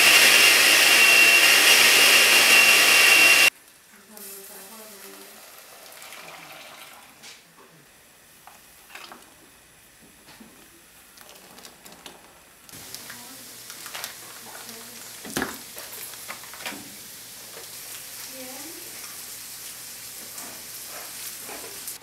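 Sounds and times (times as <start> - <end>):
liquid splashing in pot: 5.1 - 7.2.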